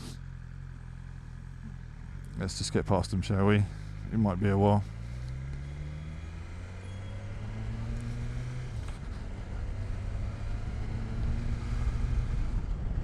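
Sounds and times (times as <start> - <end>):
vehicle engines running: 0.0 - 13.0.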